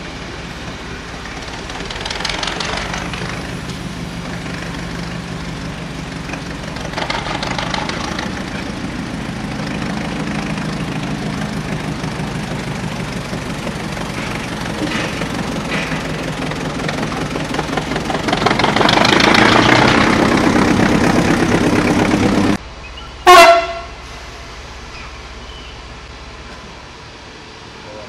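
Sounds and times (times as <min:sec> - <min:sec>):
locomotive engine running: 0:00.0 - 0:28.0
steam hissing bursts: 0:23.8 - 0:26.1.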